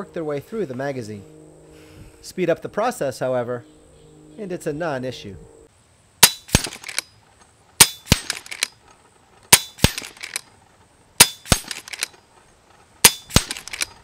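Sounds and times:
pellet striking metal target: 0:06.2 - 0:06.9, 0:07.8 - 0:08.5, 0:09.5 - 0:10.2, 0:11.2 - 0:11.9, 0:13.0 - 0:13.7
rifle action clicks: 0:06.2 - 0:07.1, 0:07.8 - 0:08.8, 0:09.5 - 0:10.5, 0:11.2 - 0:12.2, 0:13.0 - 0:14.0
suppressed air rifle shots: 0:06.2 - 0:07.1, 0:07.8 - 0:08.7, 0:09.5 - 0:10.5, 0:11.2 - 0:12.2, 0:13.0 - 0:14.0.

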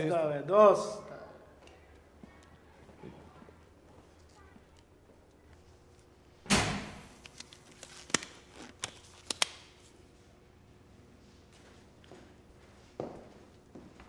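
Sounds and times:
loud slam: 0:06.5 - 0:07.1.

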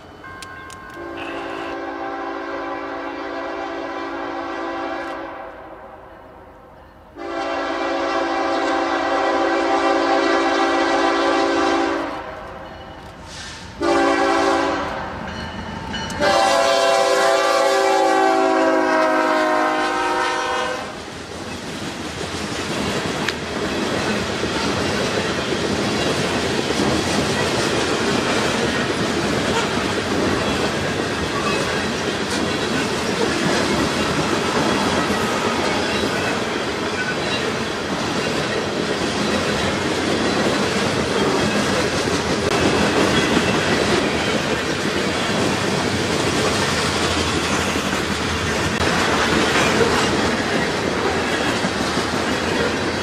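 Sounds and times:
train wheels on rails: 0:00.0 - 0:05.2, 0:06.8 - 0:53.0
locomotive air horn blasts: 0:01.0 - 0:06.0, 0:07.2 - 0:12.6, 0:13.3 - 0:15.2, 0:16.2 - 0:21.0, 0:29.5 - 0:29.9.

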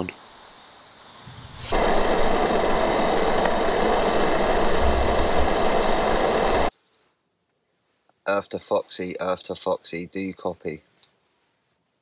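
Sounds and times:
gas stove burner hissing: 0:01.6 - 0:06.7.

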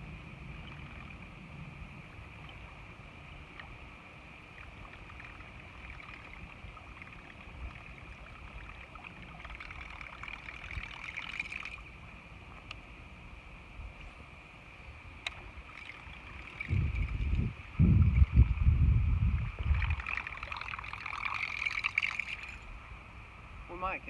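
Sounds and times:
rain hiss: 0:00.0 - 0:24.0.

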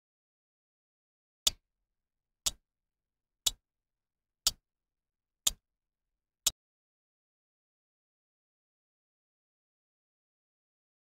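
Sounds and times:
timer clock ticks: 0:02.4 - 0:02.6, 0:03.4 - 0:03.6, 0:04.4 - 0:04.6, 0:05.4 - 0:05.6.

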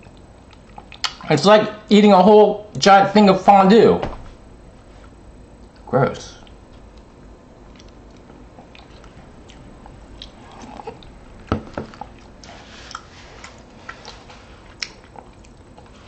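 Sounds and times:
chewing and wet mouth clicks: 0:00.0 - 0:01.2, 0:07.7 - 0:11.2, 0:14.8 - 0:15.9.

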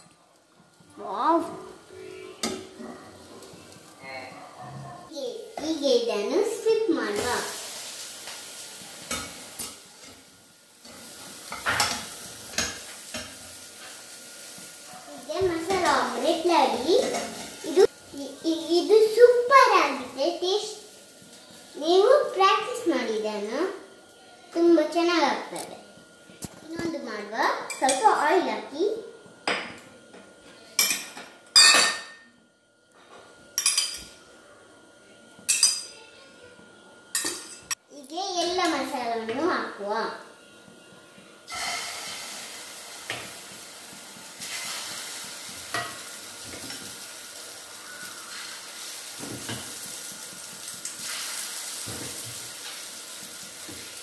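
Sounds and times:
egg sizzling in frying pan: 0:05.4 - 0:23.7, 0:41.5 - 0:54.0.

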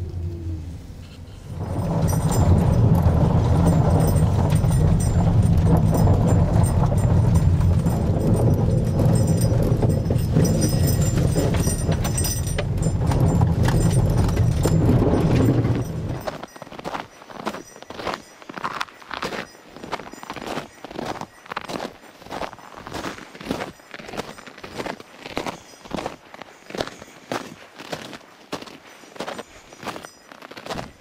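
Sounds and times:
car cabin low rumble: 0:00.0 - 0:16.2
snow crunching under tyres: 0:01.0 - 0:31.0.

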